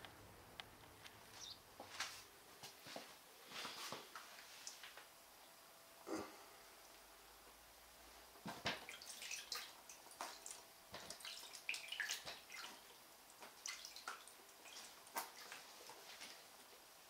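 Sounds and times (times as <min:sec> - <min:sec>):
water splashing in plastic tub: 0:08.4 - 0:16.6.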